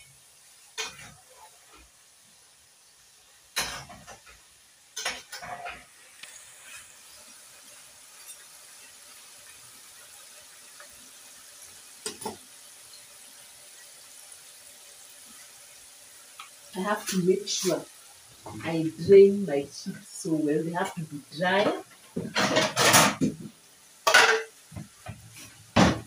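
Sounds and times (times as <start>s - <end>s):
chips sizzling in hot oil: 0.0s - 26.0s
metal spoon scraping a pan: 5.0s - 6.9s, 8.1s - 9.0s, 22.2s - 23.2s, 24.1s - 24.6s.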